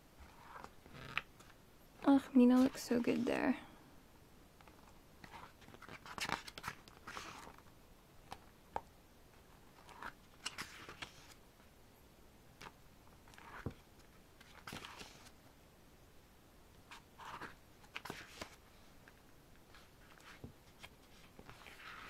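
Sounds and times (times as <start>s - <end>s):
book pages turning: 0.2s - 1.6s, 4.6s - 8.8s, 9.6s - 11.4s, 12.6s - 15.4s, 16.9s - 22.0s.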